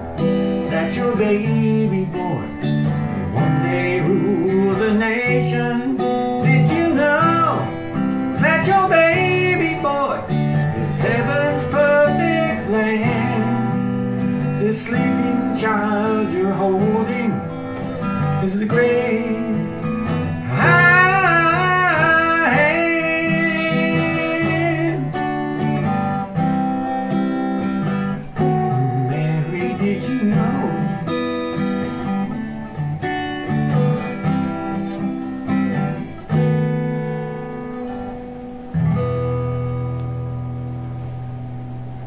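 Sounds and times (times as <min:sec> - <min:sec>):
man singing with vibrato: 0:00.0 - 0:26.5, 0:28.0 - 0:32.4.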